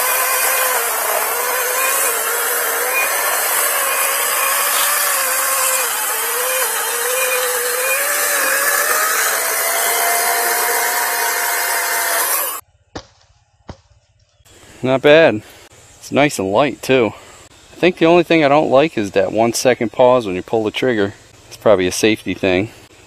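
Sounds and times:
electric chainsaw cutting log: 0:00.0 - 0:12.6.

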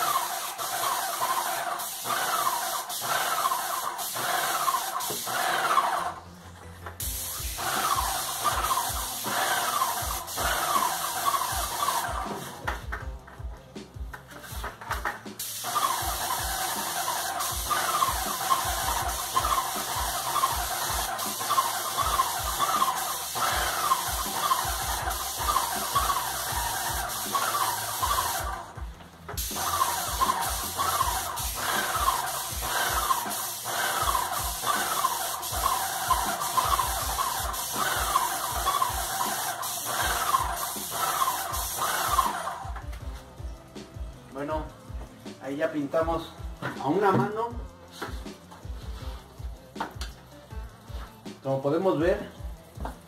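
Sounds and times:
paint sprayer hiss: 0:00.0 - 0:06.3, 0:06.9 - 0:12.8, 0:14.4 - 0:28.8, 0:29.4 - 0:42.8.

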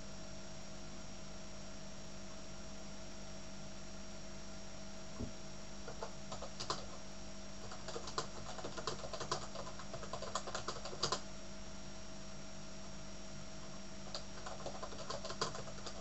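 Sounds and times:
typing on computer keyboard: 0:05.9 - 0:07.0, 0:07.6 - 0:11.2, 0:14.1 - 0:16.0.

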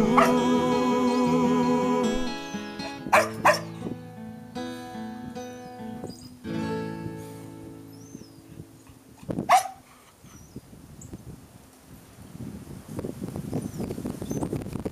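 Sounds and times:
dog barking: 0:00.0 - 0:00.4, 0:03.1 - 0:03.8, 0:09.4 - 0:09.8
song playing: 0:00.0 - 0:05.7, 0:06.5 - 0:07.9.

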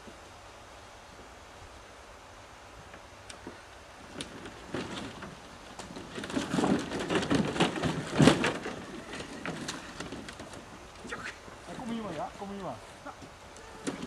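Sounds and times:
canoe hull scraping over ground: 0:04.0 - 0:14.0.

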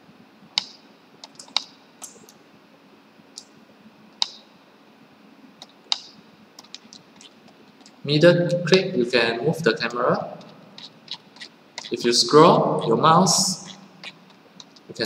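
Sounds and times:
computer mouse buttons clicking: 0:00.6 - 0:02.2, 0:05.6 - 0:07.9.

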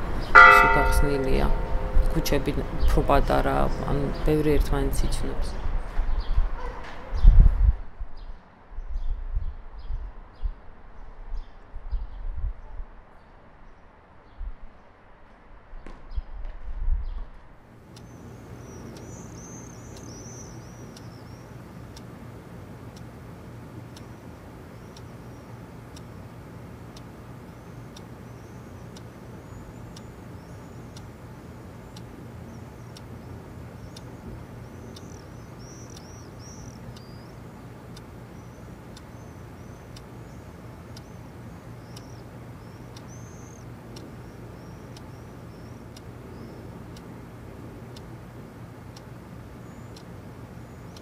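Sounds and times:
steady low hum: 0:00.0 - 0:06.6, 0:17.5 - 0:51.0
birds chirping: 0:00.0 - 0:07.4, 0:17.9 - 0:51.0
alarm clock ticking: 0:00.2 - 0:04.8, 0:17.9 - 0:51.0.

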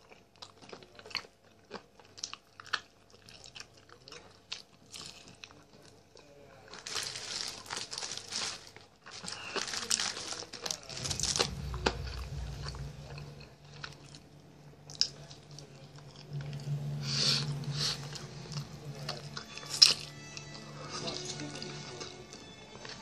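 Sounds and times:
chewing chicken drumstick: 0:00.0 - 0:06.8
low steady hum: 0:09.3 - 0:23.0.

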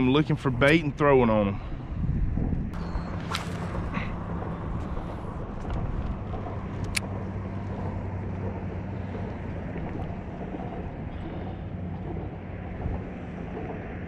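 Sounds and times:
low motor drone: 0:00.0 - 0:14.0.

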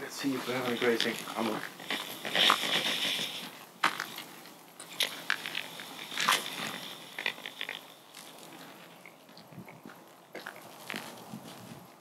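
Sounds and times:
footsteps crunching on gravel: 0:00.0 - 0:12.0.

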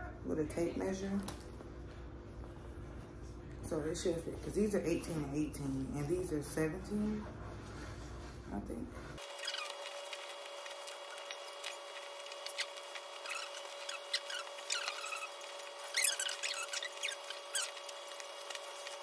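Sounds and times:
fabric rustling and rubbing: 0:09.2 - 0:19.0.

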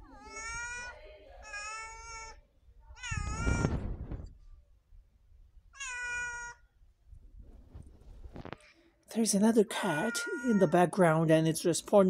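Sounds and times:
cat meowing: 0:00.0 - 0:03.8, 0:05.7 - 0:06.6, 0:09.8 - 0:10.8.

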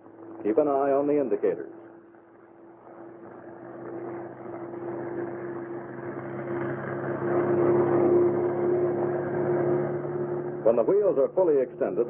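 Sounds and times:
aircraft engine droning in flight: 0:00.0 - 0:12.0.

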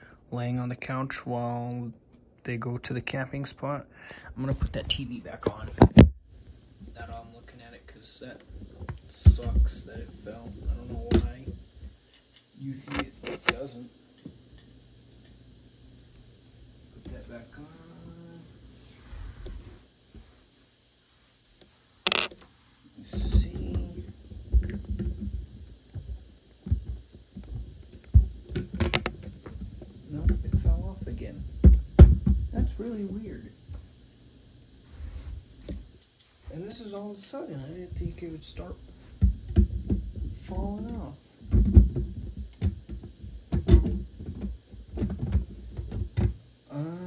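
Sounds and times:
microphone handling rustle: 0:04.3 - 0:06.2
plastic toy bricks clicking: 0:22.1 - 0:22.3.

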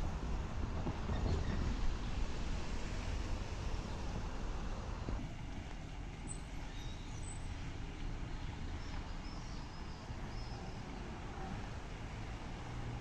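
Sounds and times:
cars driving by: 0:00.0 - 0:13.0.

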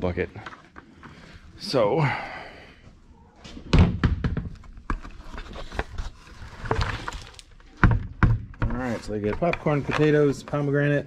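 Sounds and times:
food scraps sliding out: 0:05.6 - 0:07.5
bucket knocks and rattles: 0:07.7 - 0:10.4.

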